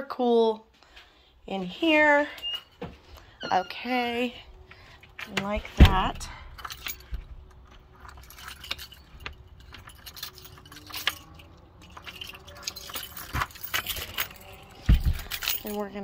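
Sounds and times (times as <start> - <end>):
keys jangling: 4.0 - 16.0.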